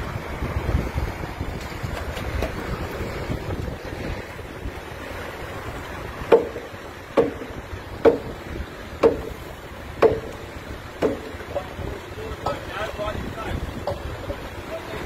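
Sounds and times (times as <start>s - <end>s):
sharp knocking with ringing tail: 6.3s - 8.3s, 9.0s - 9.4s, 10.0s - 10.4s, 11.0s - 11.4s.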